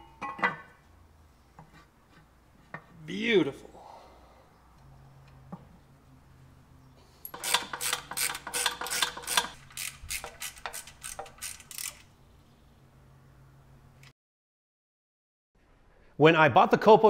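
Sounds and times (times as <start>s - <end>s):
ratchet wrench clicking: 7.3s - 12.1s.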